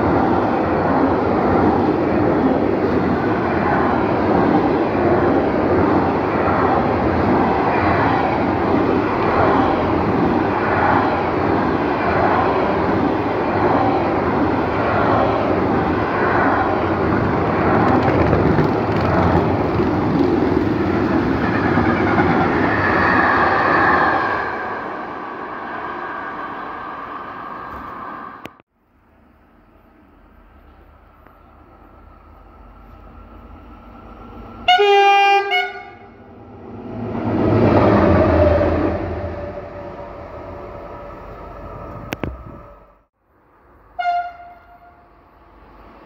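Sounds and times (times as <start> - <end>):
train wheels clattering on rails: 17.2 - 23.2.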